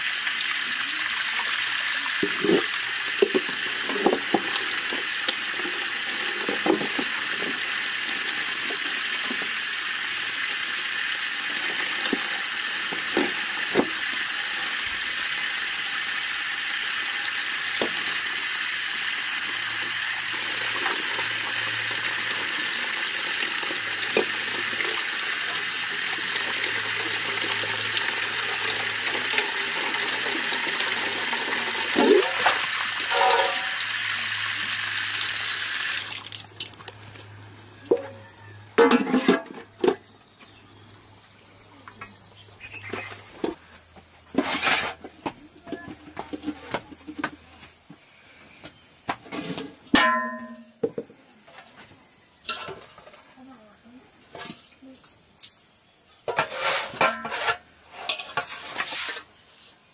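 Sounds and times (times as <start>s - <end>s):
vegetables washed by hand in pot: 0.0s - 36.8s
tap water splashing into metal pot: 1.4s - 9.7s, 17.6s - 18.6s, 19.3s - 34.0s.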